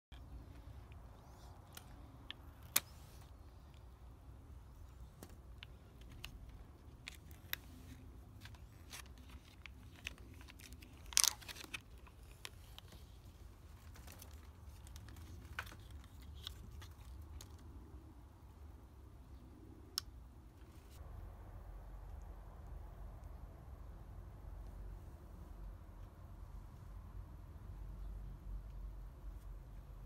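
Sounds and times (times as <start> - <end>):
plastic blister pack crinkling: 5.2 - 17.6
plastic tearing crackle: 6.1 - 13.1.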